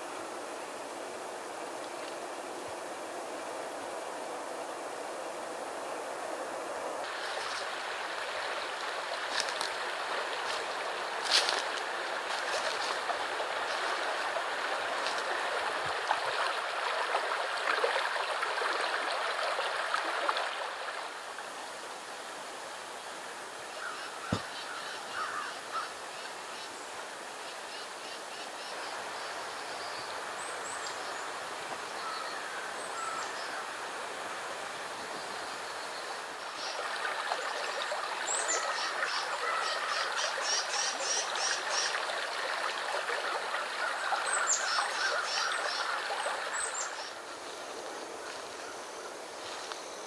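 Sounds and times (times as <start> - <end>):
steady outdoor hiss: 0.0 - 50.0
birds calling: 23.8 - 25.9, 43.5 - 47.2.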